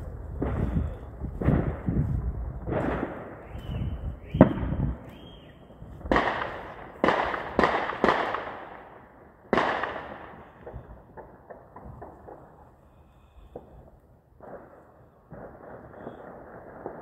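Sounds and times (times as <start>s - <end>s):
explosive bangs with echo: 0.4s - 5.1s, 5.9s - 12.4s.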